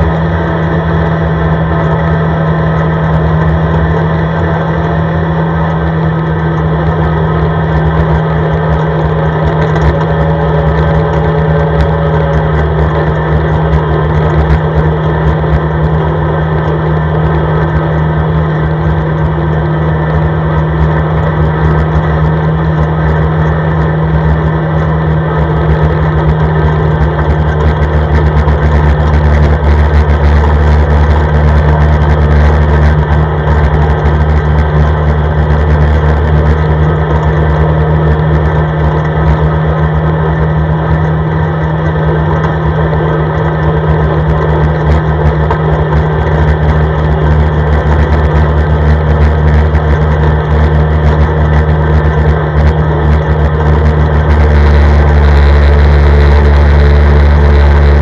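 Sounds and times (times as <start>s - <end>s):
quad engine droning: 0.0s - 58.0s.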